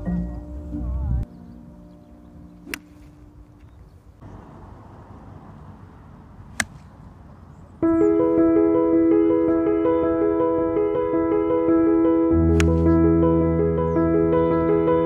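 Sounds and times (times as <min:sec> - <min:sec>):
piano music: 0:00.0 - 0:04.2, 0:07.8 - 0:15.0
golf club striking ball: 0:02.6 - 0:03.8, 0:06.5 - 0:07.1.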